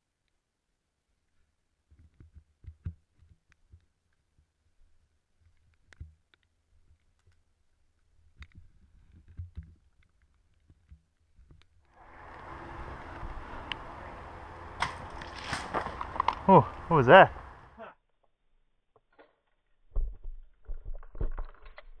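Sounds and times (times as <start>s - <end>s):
footsteps on leaves: 14.8s - 16.5s.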